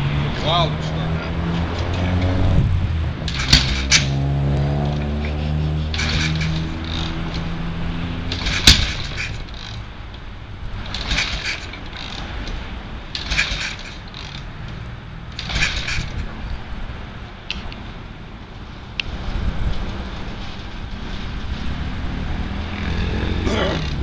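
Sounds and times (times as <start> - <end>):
mechanical clatter: 3.2 - 4.2, 4.8 - 7.6, 8.2 - 10.2, 10.8 - 14.5, 15.3 - 16.3.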